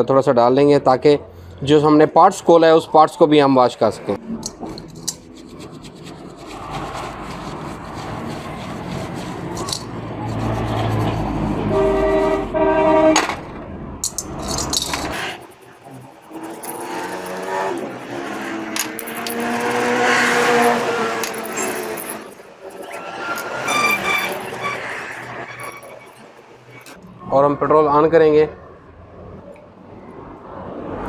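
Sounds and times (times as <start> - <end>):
vehicle engine: 4.0 - 31.0
brush scrubbing metal parts: 4.4 - 12.2, 14.0 - 27.0.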